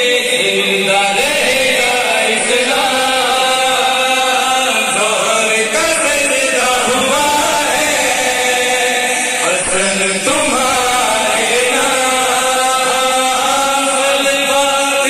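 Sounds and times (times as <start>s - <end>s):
men chanting into microphones: 0.0s - 15.0s.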